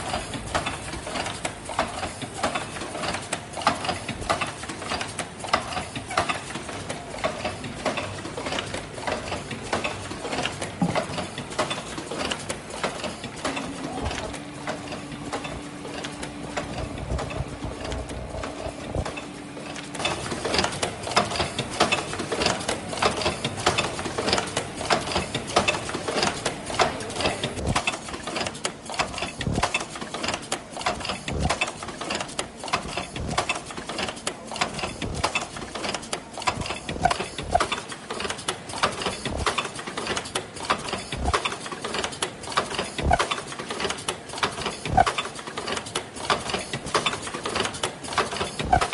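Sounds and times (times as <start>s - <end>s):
machine clattering and clicking: 0.0s - 48.9s
steady low hum: 10.8s - 33.8s, 34.6s - 37.9s, 38.9s - 39.6s, 41.1s - 41.4s.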